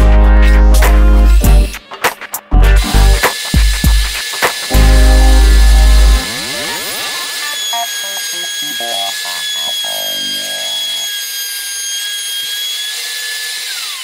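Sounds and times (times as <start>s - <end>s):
router whining: 2.8s - 14.0s
router bit cutting chatter: 3.2s - 14.0s.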